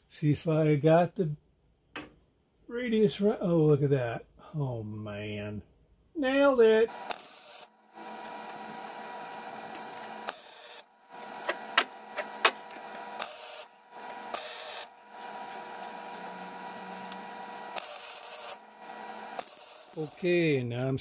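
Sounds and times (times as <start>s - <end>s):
mechanical hum with whine: 6.9s - 21.0s.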